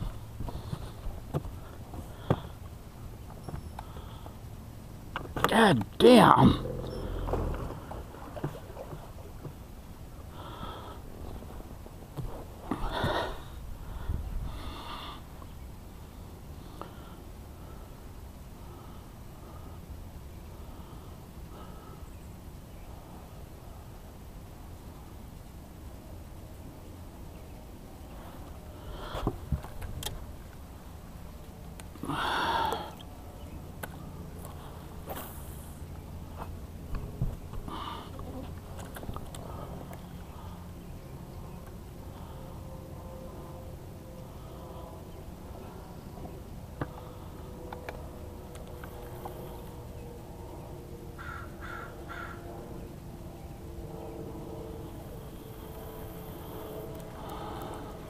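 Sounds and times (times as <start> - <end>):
low steady hum: 0.0 - 58.0.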